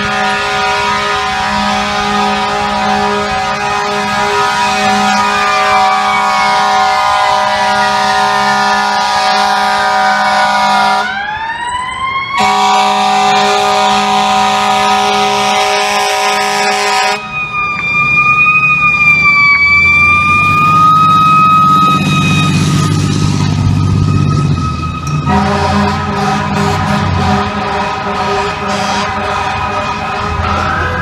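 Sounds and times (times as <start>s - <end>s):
fire truck air horns: 0.0s - 11.2s, 12.4s - 17.3s, 21.5s - 31.0s
diesel engine rumble: 13.0s - 31.0s.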